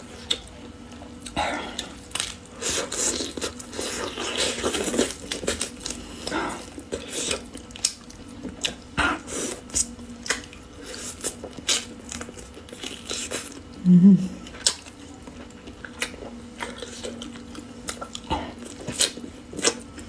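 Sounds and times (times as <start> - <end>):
person chewing and sucking bones: 0.2 - 13.8, 14.4 - 20.0.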